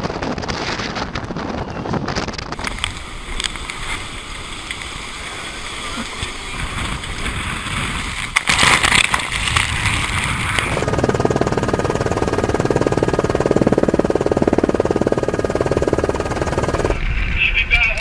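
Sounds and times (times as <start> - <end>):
wind over yacht: 0.0 - 17.4
helicopter rotor chopping: 8.5 - 17.0.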